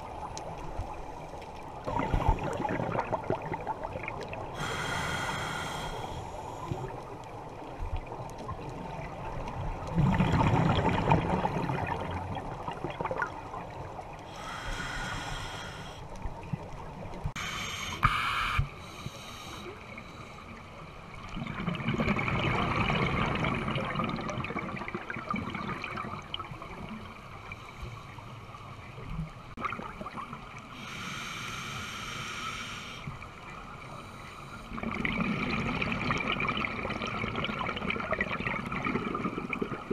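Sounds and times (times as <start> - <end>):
bubbling exhaust underwater: 1.7 - 7.3, 7.9 - 20.2, 21.2 - 27.0, 34.7 - 39.9
regulator inhale hiss: 4.6 - 7.0, 14.3 - 16.2, 17.4 - 20.6, 30.7 - 33.2.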